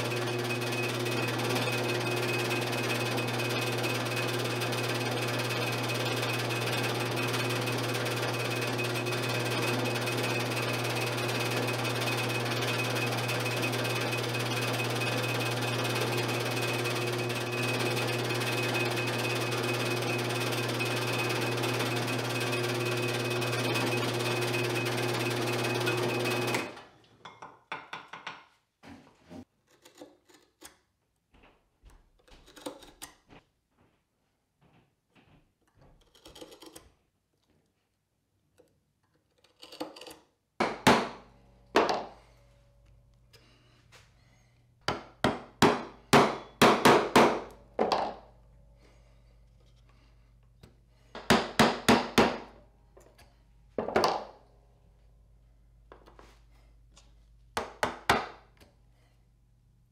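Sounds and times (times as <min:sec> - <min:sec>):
drill press motor whining: 0:00.0 - 0:26.9
knife scratching on wood: 0:29.6 - 0:30.7.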